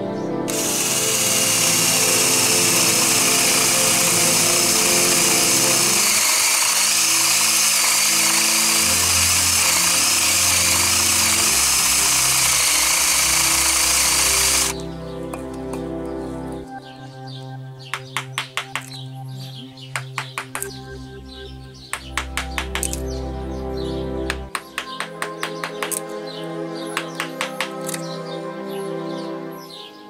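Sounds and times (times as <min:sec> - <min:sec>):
background music: 0:00.0 - 0:30.0
electric power tool cutting wood: 0:00.5 - 0:14.8, 0:22.0 - 0:23.0, 0:24.3 - 0:26.0, 0:27.0 - 0:28.0.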